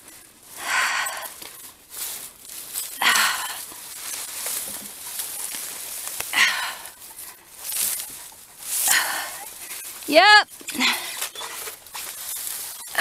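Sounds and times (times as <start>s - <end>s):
breathy exhalations: 0.0s - 2.2s, 2.8s - 5.4s, 6.0s - 10.0s, 10.6s - 11.8s
dry reeds rustling: 0.0s - 13.0s.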